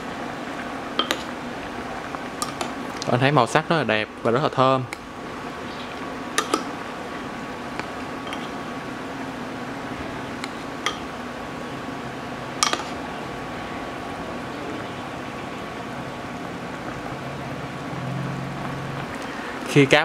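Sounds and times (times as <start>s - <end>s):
liquid simmering and bubbling in pot: 0.0s - 19.6s
faint steady hum: 0.0s - 20.0s
metal spoon clinking against pot: 6.4s - 6.7s, 8.2s - 8.5s, 12.6s - 13.0s.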